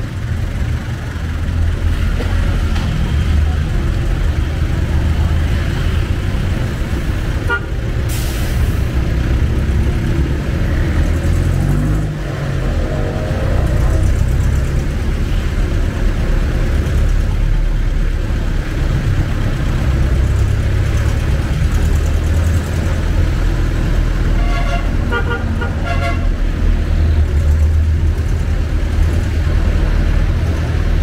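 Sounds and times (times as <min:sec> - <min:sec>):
road noise: 0:00.0 - 0:31.0
vehicle engine rumbling: 0:00.0 - 0:31.0
vehicle horn tooting: 0:24.4 - 0:26.3.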